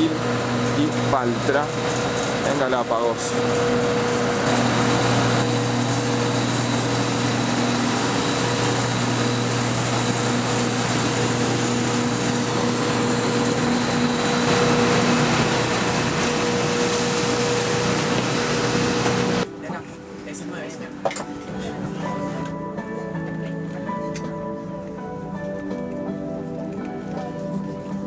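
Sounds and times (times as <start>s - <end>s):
even rushing noise: 0.0s - 19.5s
machinery hum: 0.0s - 22.5s
machinery whine: 0.0s - 28.0s.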